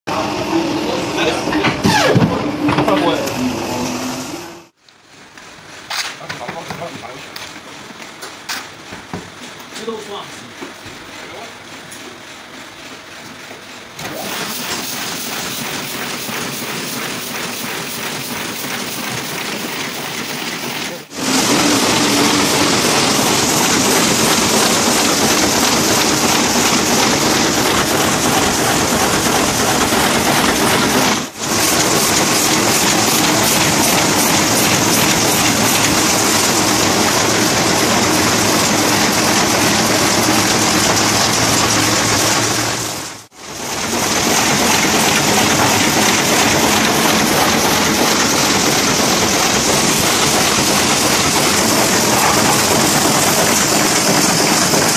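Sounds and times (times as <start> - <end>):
printing press clattering: 5.1 - 54.9.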